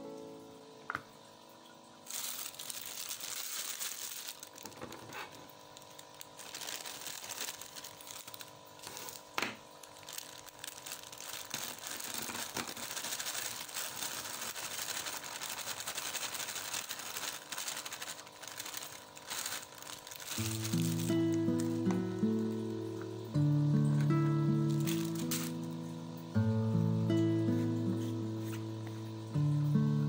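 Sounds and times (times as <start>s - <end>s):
plastic packaging crinkling: 2.0s - 22.9s, 23.9s - 26.0s
scissors cutting plastic bag: 2.1s - 22.8s, 23.9s - 25.9s.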